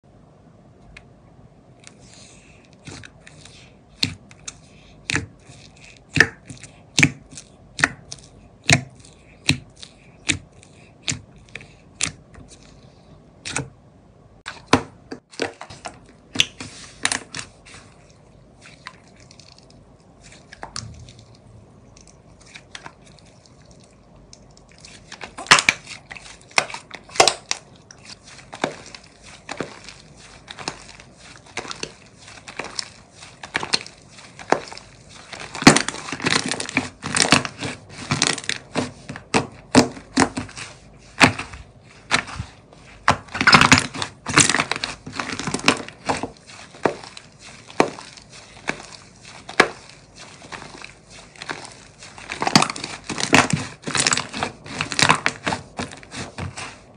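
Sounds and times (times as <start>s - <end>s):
slime popping and crackling: 18.9s - 56.9s.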